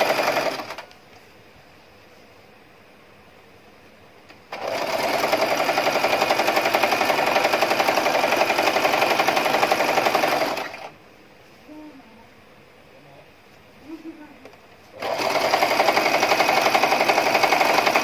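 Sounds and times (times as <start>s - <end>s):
sewing machine stitching: 0.0s - 0.9s, 4.5s - 10.9s, 15.0s - 18.0s.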